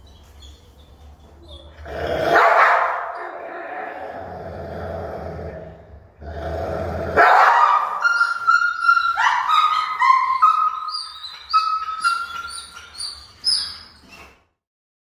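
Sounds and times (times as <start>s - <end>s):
dog whining and yelping: 7.6s - 14.5s.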